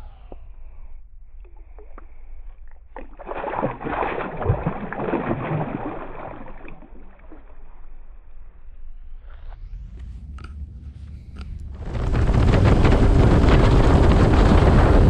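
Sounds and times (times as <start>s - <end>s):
fish splashing at water surface: 1.5s - 7.9s.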